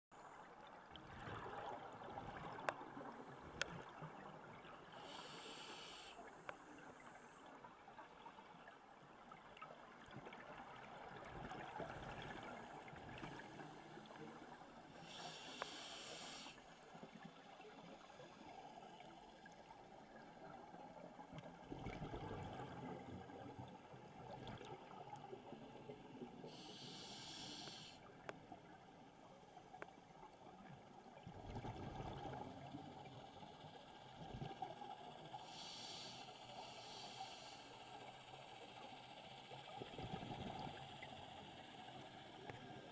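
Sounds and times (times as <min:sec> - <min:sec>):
diver breathing through regulator: 0:05.0 - 0:06.2, 0:15.0 - 0:16.6, 0:26.5 - 0:28.0, 0:35.4 - 0:37.9
short hissing inhalations: 0:05.0 - 0:06.3, 0:15.0 - 0:16.6, 0:26.5 - 0:28.0, 0:35.4 - 0:38.0.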